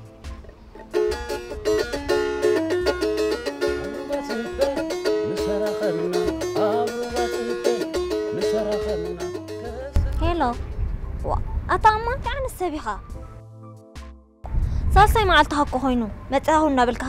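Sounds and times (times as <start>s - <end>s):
plucked lyre melody: 0.0s - 11.0s
low pulsing bass beat: 7.9s - 12.2s.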